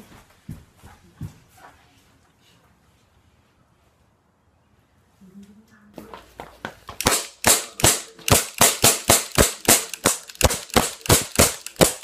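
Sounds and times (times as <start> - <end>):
rapid pistol shots: 7.0 - 12.0.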